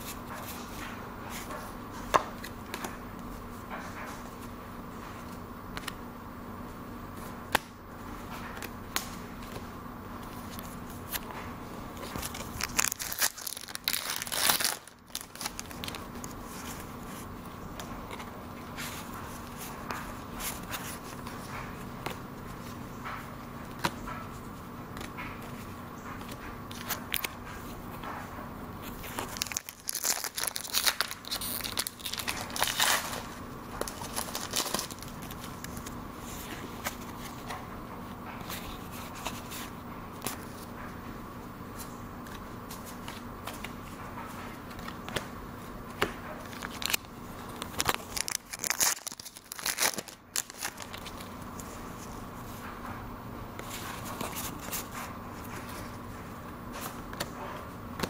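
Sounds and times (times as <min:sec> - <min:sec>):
steady hum: 0:00.0 - 0:58.0
foil wrapper crinkling and tearing: 0:12.0 - 0:16.7, 0:28.9 - 0:35.9, 0:46.4 - 0:51.3.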